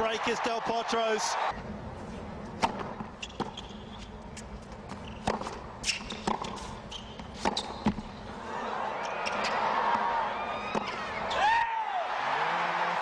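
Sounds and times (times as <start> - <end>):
sneakers squeaking on court: 2.9 - 8.3
ball bouncing on court: 4.9 - 8.1, 10.7 - 11.0
racket striking tennis ball: 5.2 - 6.7.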